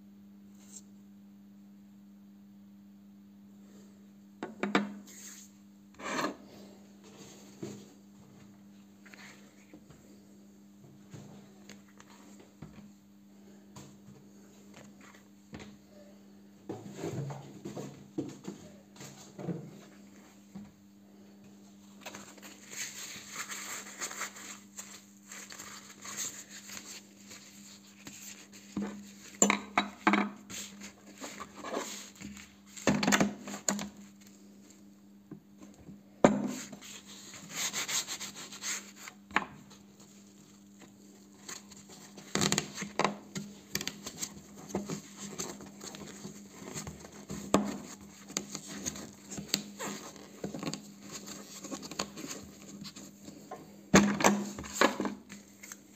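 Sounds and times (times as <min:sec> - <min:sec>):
knocks and clatter on table: 0:04.4 - 0:05.0, 0:29.4 - 0:30.4
cloth rubbing on a tabletop: 0:05.1 - 0:06.2, 0:22.2 - 0:29.4, 0:30.4 - 0:32.8, 0:36.5 - 0:39.2.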